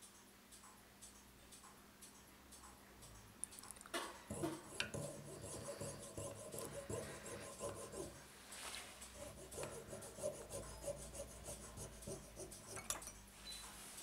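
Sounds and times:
fine saw rasping through plastic: 0:04.3 - 0:08.2, 0:09.2 - 0:12.8.

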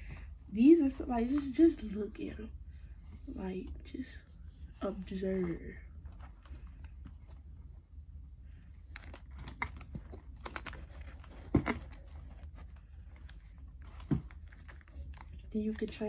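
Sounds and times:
sneaker handling rustling: 0:09.4 - 0:15.2.

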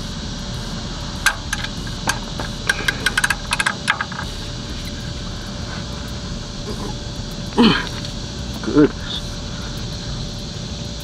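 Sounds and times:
low background rumble: 0:00.0 - 0:11.0
wrench clicking on metal: 0:01.2 - 0:04.3.

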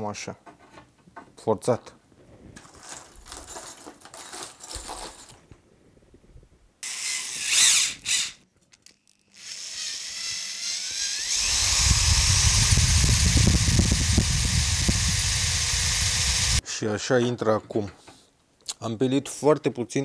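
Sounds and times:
metal bits rattling in a box: 0:02.6 - 0:05.4
rotary tool whining: 0:06.8 - 0:08.4, 0:09.1 - 0:16.6.

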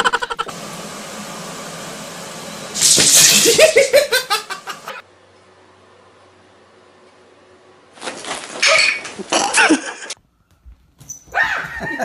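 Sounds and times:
person laughing loudly: 0:00.0 - 0:00.5, 0:03.4 - 0:05.0, 0:09.2 - 0:10.2, 0:11.5 - 0:12.0.

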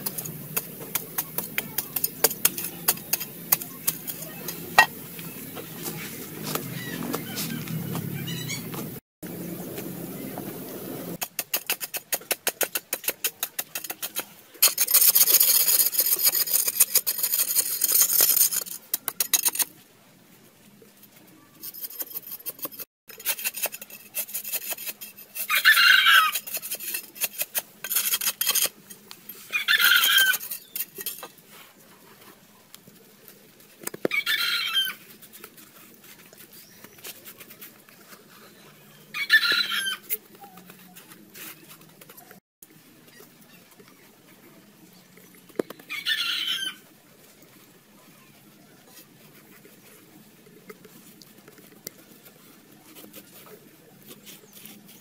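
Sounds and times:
hand tool scraping hard earth: 0:11.2 - 0:19.7, 0:21.6 - 0:32.4, 0:34.8 - 0:42.4, 0:50.7 - 0:55.0.

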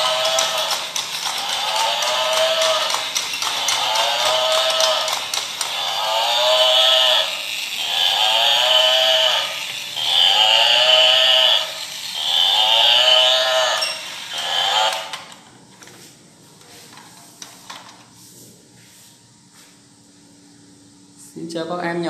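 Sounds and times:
toy playing recorded animal call: 0:00.0 - 0:15.3.

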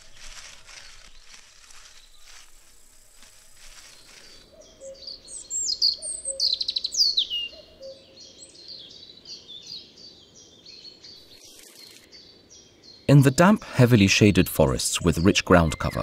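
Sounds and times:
robin singing: 0:03.9 - 0:16.0.

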